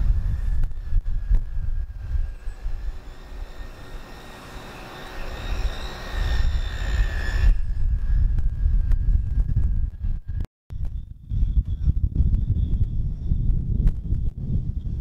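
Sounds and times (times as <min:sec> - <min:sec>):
grinder high whine: 0:00.1 - 0:10.0.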